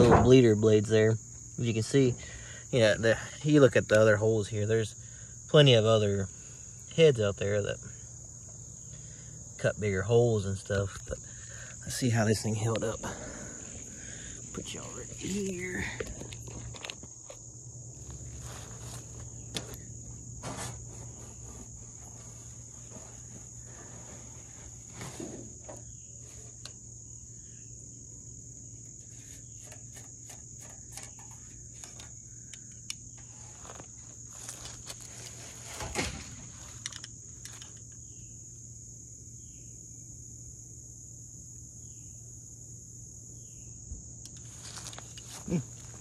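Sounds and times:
insects droning: 0:00.0 - 0:46.0
grass rustling and handling clicks: 0:03.6 - 0:04.8, 0:10.6 - 0:26.9, 0:28.8 - 0:38.3, 0:44.2 - 0:46.0.

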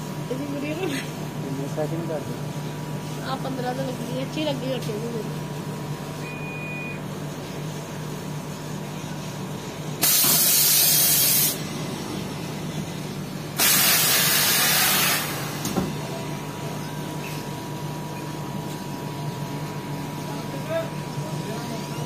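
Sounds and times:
steady machine hum: 0:00.0 - 0:22.0
compressed air hissing: 0:10.0 - 0:11.6, 0:13.6 - 0:15.8.

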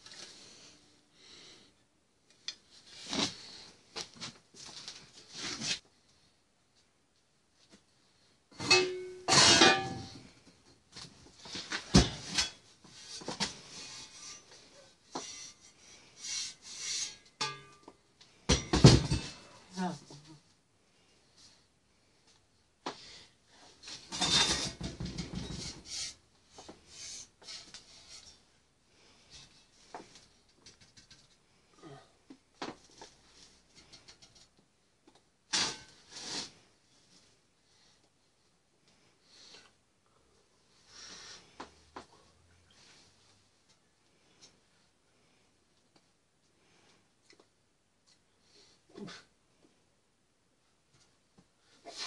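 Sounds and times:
rustling and scraping handling noise: 0:00.0 - 0:00.9, 0:02.3 - 0:07.9, 0:08.6 - 0:18.4, 0:23.6 - 0:31.7, 0:35.5 - 0:37.4
metal pipes scraping on floor: 0:08.6 - 0:10.3, 0:11.5 - 0:17.9, 0:23.8 - 0:28.4
rustling and knocks: 0:23.8 - 0:28.4.

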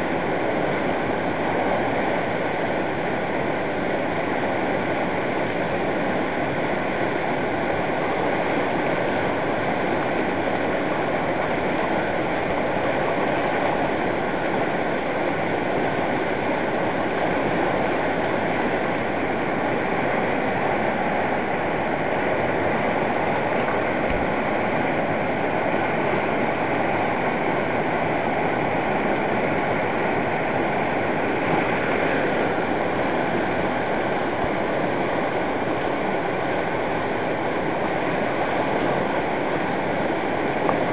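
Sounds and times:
river water rushing over boulders: 0:00.0 - 0:40.9.

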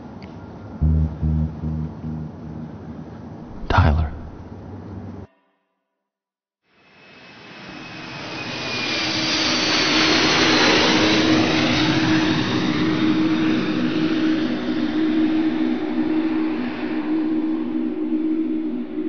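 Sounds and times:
jet whine falling in pitch: 0:00.8 - 0:04.4
low hum: 0:00.8 - 0:04.5.

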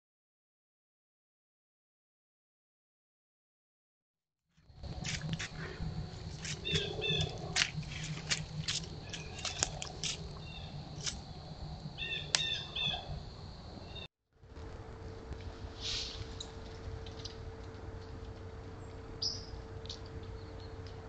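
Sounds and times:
low hum: 0:04.6 - 0:21.0
hooves crunching dry leaves: 0:04.8 - 0:11.2.

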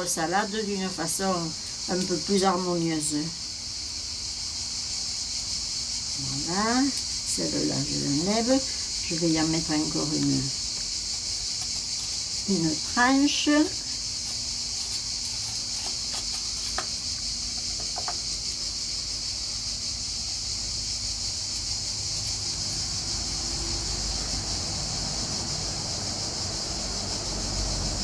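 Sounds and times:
insects shrilling: 0:00.0 - 0:28.0.

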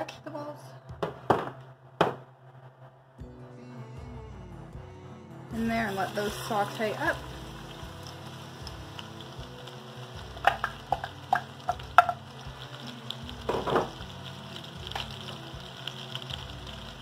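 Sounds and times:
vegetables sizzling in grease: 0:05.6 - 0:17.0
sharp pops of frying: 0:07.1 - 0:17.0.

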